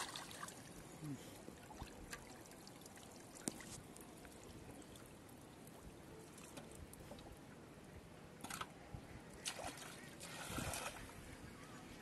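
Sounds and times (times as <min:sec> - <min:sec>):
water trickling and sloshing: 0:00.0 - 0:12.0.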